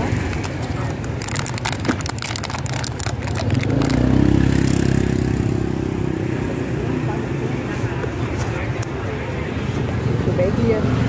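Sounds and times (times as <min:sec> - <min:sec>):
vehicle engine passing: 0:00.0 - 0:07.7
plastic cup lid and bag crinkling: 0:00.1 - 0:04.8.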